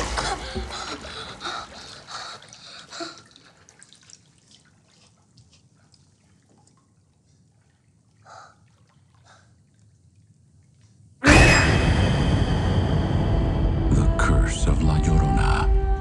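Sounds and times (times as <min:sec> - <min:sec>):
water dripping in bathtub: 0:00.2 - 0:11.1
loud sound effect: 0:11.2 - 0:16.0.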